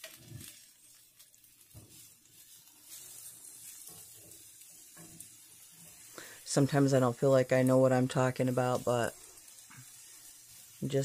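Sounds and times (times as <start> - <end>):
wooden spatula scraping a pan: 0.0 - 6.2
onions sizzling in a skillet: 0.0 - 11.0.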